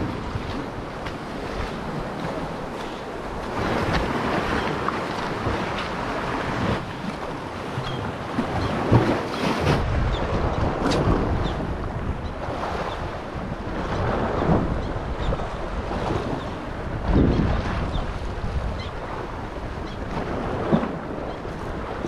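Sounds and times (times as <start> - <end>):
sea water sloshing: 0.0 - 11.7
wind buffeting microphone: 0.0 - 22.0.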